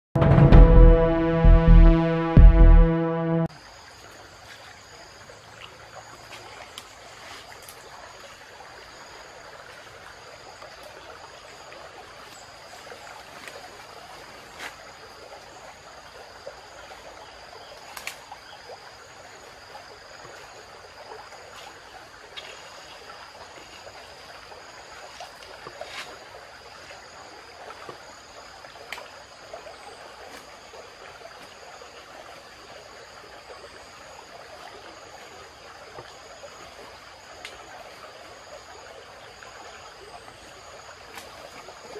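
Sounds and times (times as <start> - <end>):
stream running: 2.0 - 41.9
insects calling in pulsing tones: 3.3 - 41.9
dry bamboo snapping: 17.9 - 18.2.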